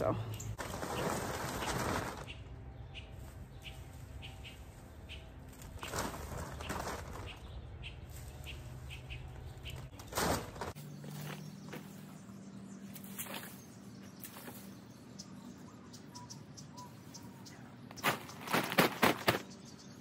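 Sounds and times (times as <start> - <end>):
bird chirping: 0.0 - 20.0
branches rustling against paper bag: 0.6 - 2.5, 3.1 - 12.0, 18.0 - 19.4.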